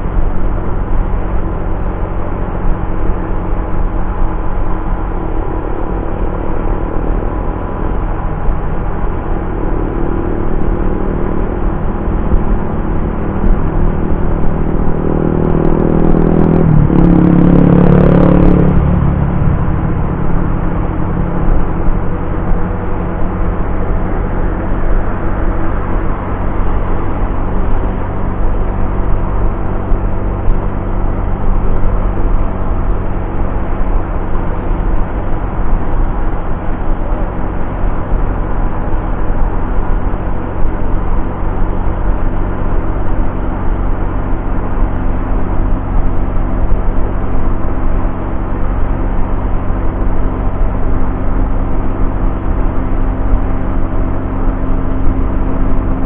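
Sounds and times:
road noise: 0:00.0 - 0:56.0
scooter engine drone: 0:00.0 - 0:56.0
wind rush: 0:02.5 - 0:56.0.

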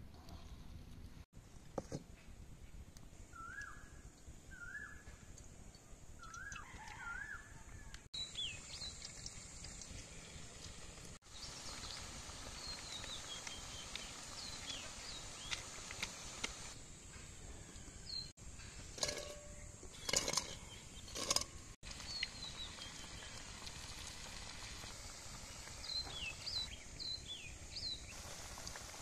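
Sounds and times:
birds chirping: 0:08.2 - 0:16.8
oil frying hiss: 0:08.2 - 0:29.0.

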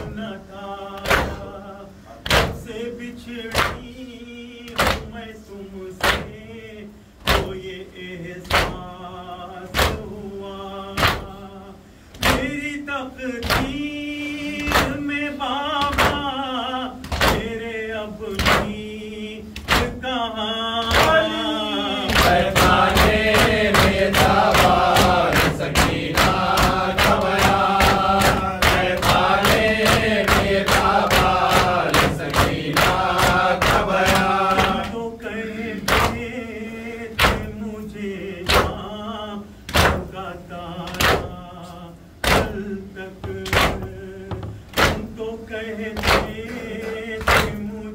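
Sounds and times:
men chanting in unison: 0:00.0 - 0:47.9
hands slapping chests: 0:13.4 - 0:13.8, 0:19.6 - 0:20.0, 0:22.1 - 0:34.9, 0:35.8 - 0:36.2.

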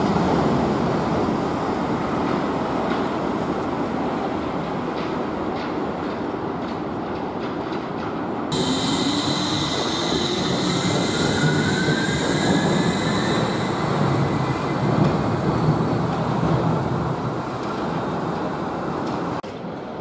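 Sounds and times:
train wheels rumbling on rail: 0:00.0 - 0:20.0
high steady squeal: 0:08.5 - 0:15.6.

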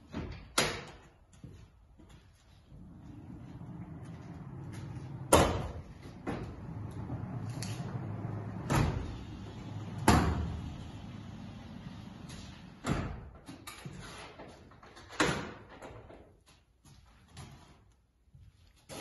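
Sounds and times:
sliding door rumbling on rollers: 0:02.7 - 0:13.3.

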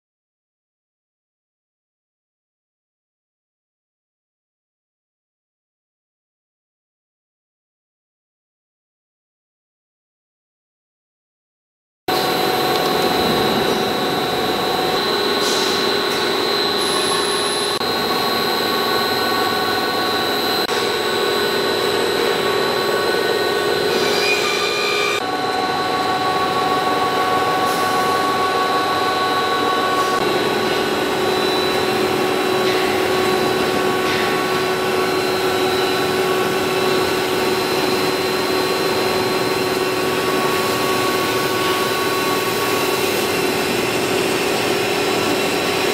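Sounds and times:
constant whining tones: 0:12.1 - 0:23.7
machine noise from motors: 0:12.1 - 0:45.9.

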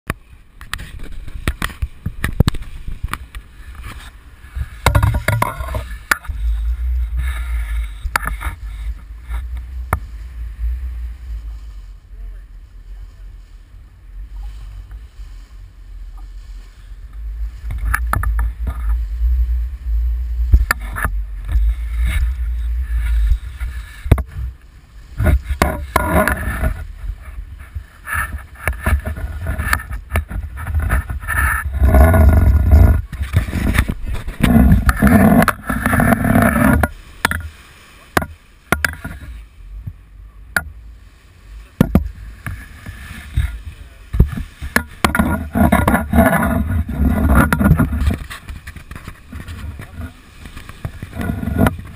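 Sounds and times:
water rushing past hull: 0:00.1 - 0:51.9
wind buffeting microphone: 0:00.4 - 0:37.6, 0:38.2 - 0:51.9
rig knocks and rattles: 0:04.8 - 0:06.4.

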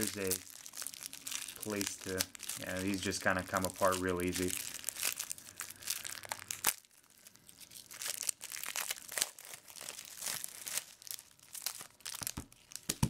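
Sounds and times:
plastic shrink wrap crinkling: 0:00.0 - 0:13.0.

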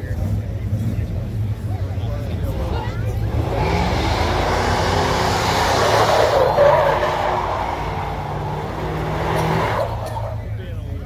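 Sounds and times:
tyres squealing on asphalt: 0:02.3 - 0:10.7
engine revving high: 0:02.4 - 0:10.5.

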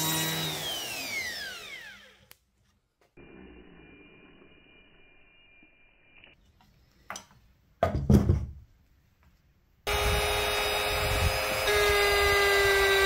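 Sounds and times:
router motor whining: 0:00.0 - 0:02.4, 0:09.9 - 0:13.0.

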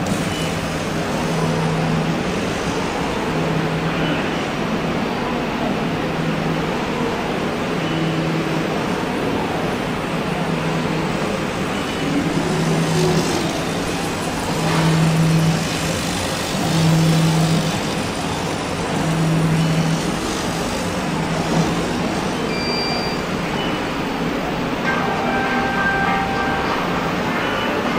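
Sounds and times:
low motor hum: 0:10.4 - 0:22.4
laser cutter rushing noise: 0:10.5 - 0:22.5.

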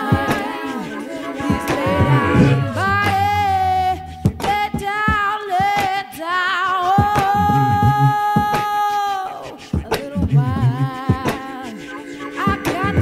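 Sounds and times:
woman singing with vibrato: 0:00.0 - 0:13.0
sharp percussive hits: 0:01.4 - 0:05.1.

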